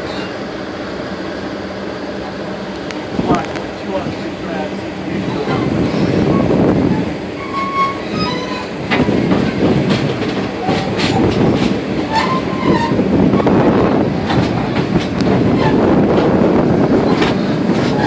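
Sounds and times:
wheel squeals: 0.0s - 0.4s, 5.2s - 9.5s, 10.6s - 13.6s, 15.5s - 15.9s, 17.0s - 18.0s
train car rumbling on track: 0.0s - 18.0s
clicks over rail joints: 8.8s - 13.0s, 14.2s - 16.4s, 17.0s - 18.0s.

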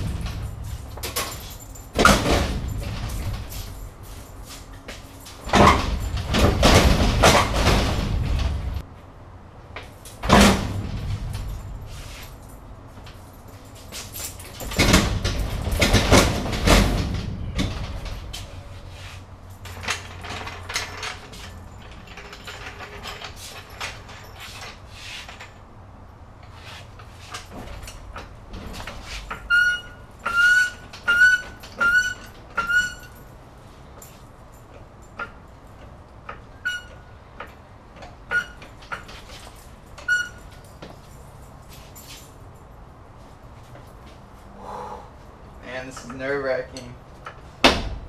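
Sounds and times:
vending machine clunks and rattles: 0.0s - 4.0s, 5.3s - 8.8s, 10.1s - 11.9s, 14.3s - 18.6s, 47.4s - 48.0s
floor jack handle squeaking: 27.2s - 33.3s, 35.2s - 40.6s.

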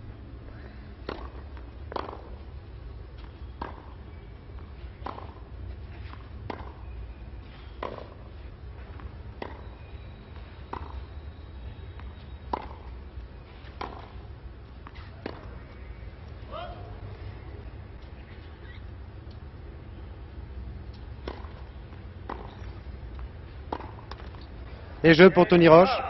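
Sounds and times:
low steady hum: 0.0s - 26.0s
tennis ball hit by racquet: 1.0s - 2.4s, 3.2s - 4.0s, 5.0s - 6.9s, 7.8s - 8.3s, 9.0s - 9.7s, 10.7s - 11.0s, 12.0s - 12.9s, 13.6s - 14.2s, 14.8s - 15.6s, 20.9s - 22.8s, 23.7s - 24.4s.

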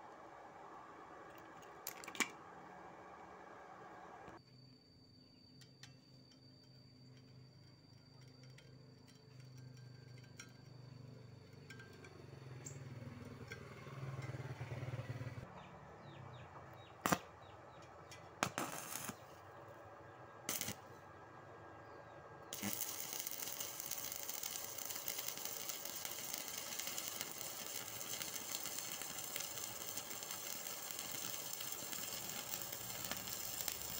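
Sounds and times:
welding arc crackling: 17.0s - 17.2s, 18.4s - 19.4s, 20.5s - 20.8s, 22.5s - 33.9s.

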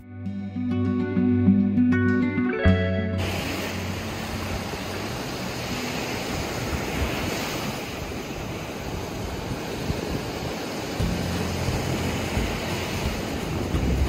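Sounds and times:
surf washing up sand: 3.2s - 14.0s
wind rumbling on microphone: 3.2s - 14.0s.

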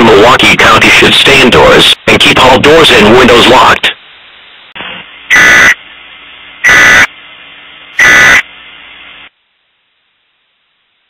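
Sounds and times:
low background hiss: 0.0s - 8.0s, 8.6s - 11.0s
loud digital data bursts: 5.3s - 5.8s, 6.6s - 7.1s, 8.0s - 8.5s.

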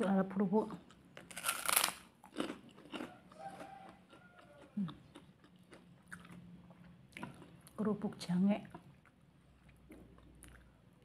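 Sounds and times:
cracker crunching: 0.9s - 6.4s.

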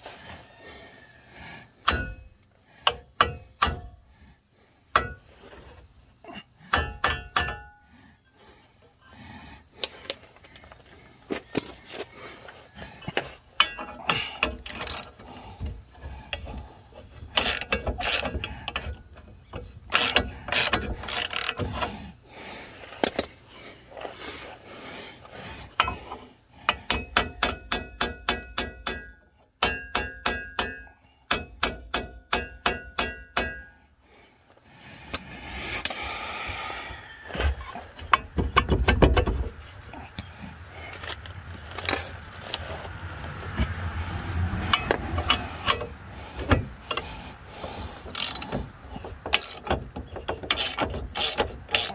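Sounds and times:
metal clinks and scrapes: 9.8s - 15.4s, 16.3s - 22.0s, 40.8s - 51.9s
ratchet wrench clicking: 13.6s - 15.3s, 17.3s - 19.0s, 19.6s - 21.9s, 26.7s - 33.7s, 44.5s - 51.9s.

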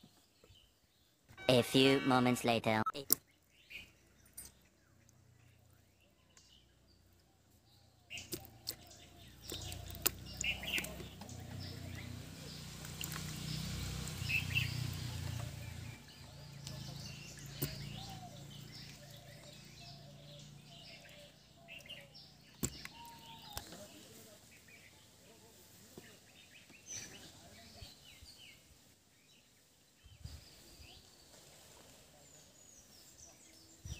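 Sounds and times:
birds chirping: 0.0s - 33.9s
low motor hum: 8.6s - 21.8s.

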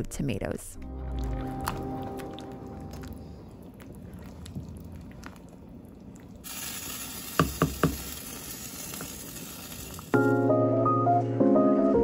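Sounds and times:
wooden spoon stirring soup: 1.2s - 6.4s.

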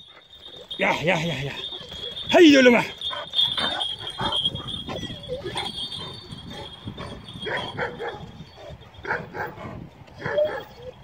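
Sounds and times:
dogs barking: 3.0s - 10.9s.

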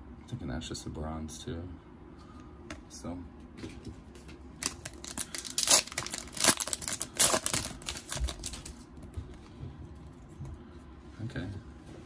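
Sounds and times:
foil wrapper crinkling: 4.6s - 8.9s.

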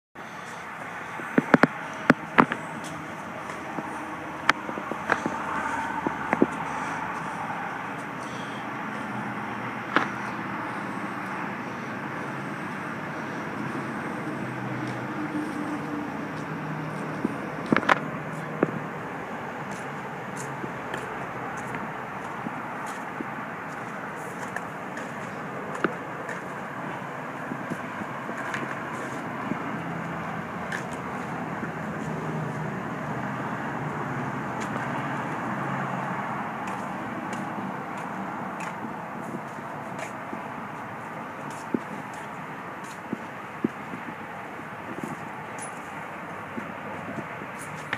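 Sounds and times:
outdoor vehicle noise: 0.2s - 47.9s
road traffic: 0.2s - 47.9s.

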